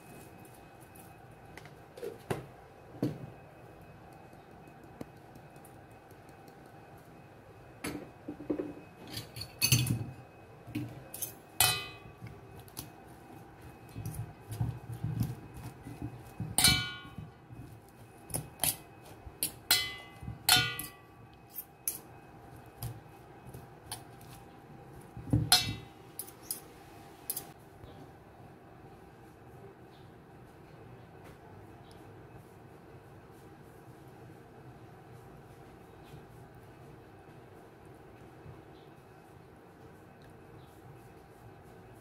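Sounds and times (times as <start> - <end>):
forks clinking against metal bowl: 9.1 - 10.0, 11.1 - 12.1, 16.6 - 17.2, 19.4 - 22.1, 25.5 - 26.6, 27.3 - 27.5.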